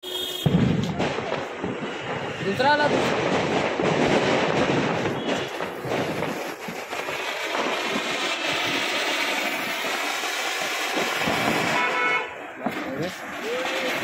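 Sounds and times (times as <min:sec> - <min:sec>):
fountain firework hissing: 0:05.0 - 0:14.0.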